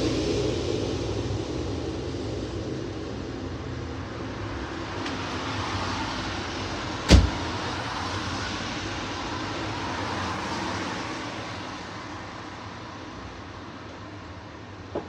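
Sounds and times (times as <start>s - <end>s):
sharp knock: 7.1s - 7.5s.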